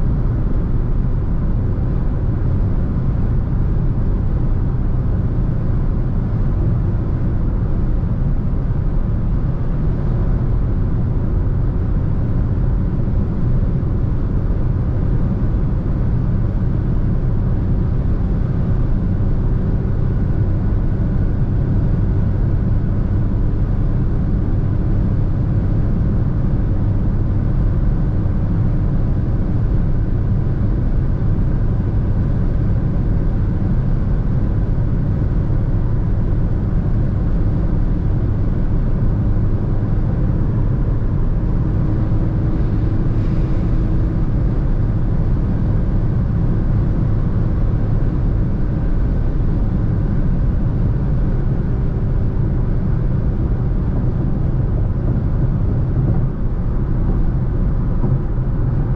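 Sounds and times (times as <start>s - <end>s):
car engine and tyres cruising: 0.0s - 58.9s.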